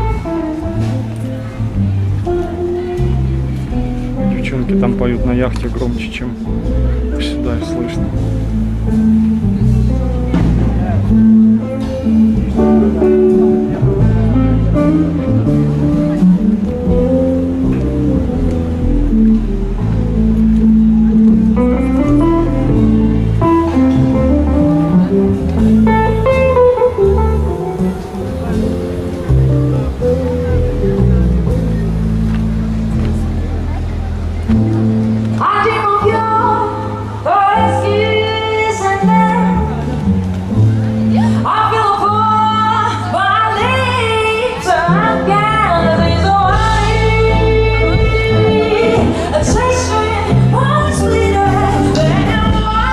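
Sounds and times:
held bass notes: 0:00.0 - 0:52.9
jazz band over loudspeakers: 0:00.0 - 0:52.9
woman singing: 0:35.4 - 0:39.8, 0:41.1 - 0:52.9.

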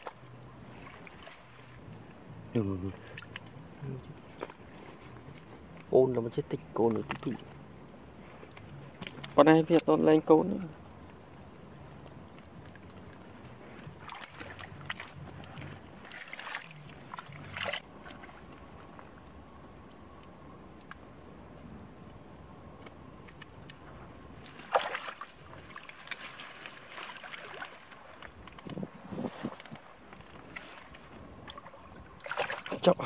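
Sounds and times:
hands squelching in wet mud: 0:11.4 - 0:19.0, 0:24.4 - 0:33.0.

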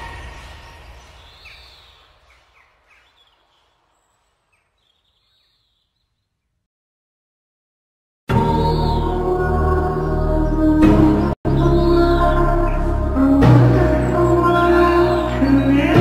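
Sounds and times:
bird chirps: 0:00.0 - 0:06.7, 0:08.4 - 0:09.5, 0:11.5 - 0:16.0
background music: 0:08.3 - 0:16.0.

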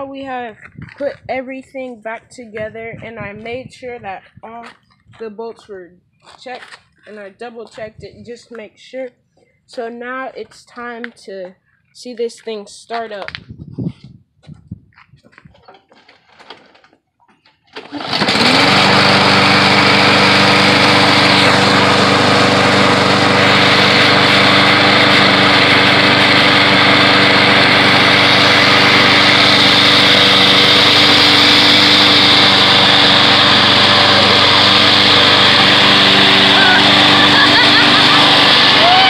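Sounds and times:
lawn mower engine running: 0:17.7 - 0:39.0.

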